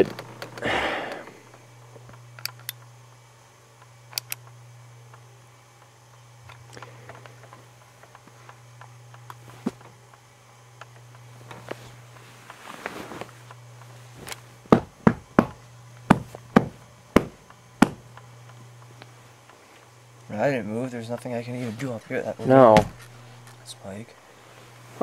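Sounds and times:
steady low hum: 0.0s - 25.0s
sharp knocks: 14.7s - 18.0s.

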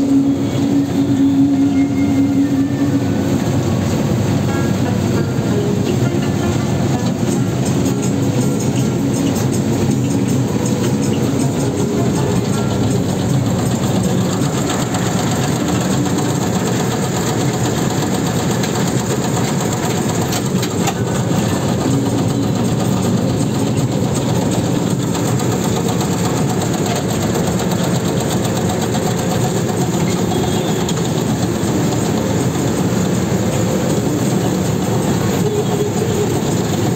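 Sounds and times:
combine harvester running: 0.0s - 36.9s.

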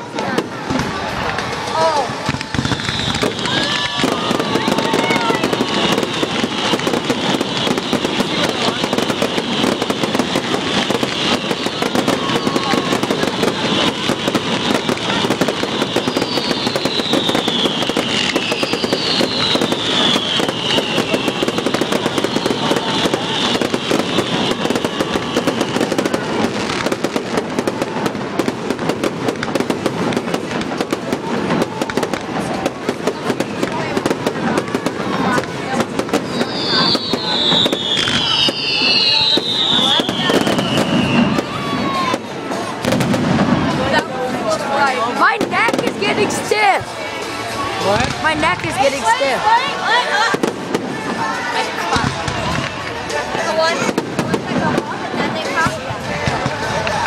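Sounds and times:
fireworks bangs and pops: 0.0s - 57.0s
fireworks crackle: 0.0s - 57.0s
falling firework whistles: 2.2s - 28.2s, 33.0s - 43.6s.

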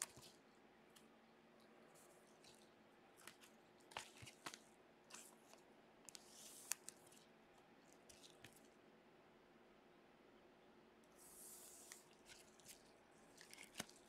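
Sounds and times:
plastic sleeves crinkling: 2.0s - 7.2s, 11.8s - 14.0s.

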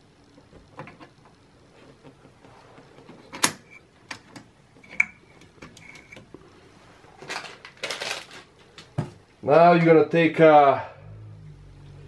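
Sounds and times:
handling rustles: 4.2s - 9.3s.

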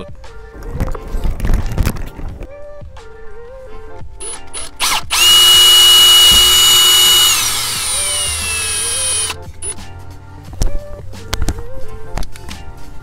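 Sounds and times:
cordless drill whining: 4.2s - 9.8s.

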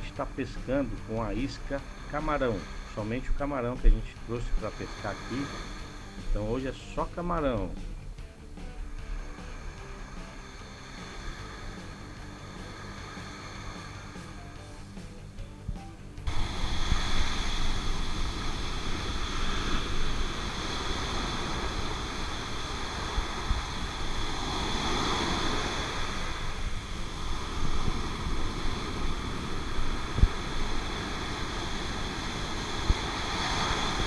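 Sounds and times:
surf washing onto beach: 0.0s - 8.0s, 8.7s - 15.2s, 16.2s - 34.0s
wind buffeting microphone: 15.5s - 34.0s.

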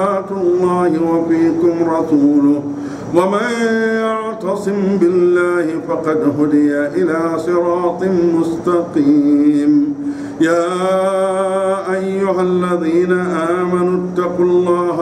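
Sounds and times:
man chanting melodically: 0.0s - 15.0s
breath: 2.7s - 3.1s, 10.0s - 10.4s.

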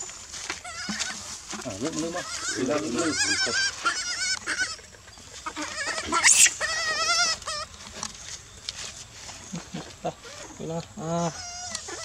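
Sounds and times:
baby monkey crying: 0.6s - 1.2s, 1.9s - 7.8s, 11.2s - 12.0s.

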